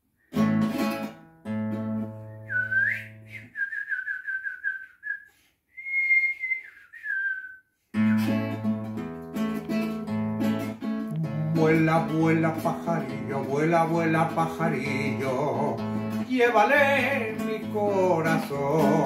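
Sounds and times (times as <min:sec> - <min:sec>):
classical guitar strumming chords: 0:00.3 - 0:02.5, 0:08.0 - 0:19.0
man whistling: 0:02.2 - 0:08.5.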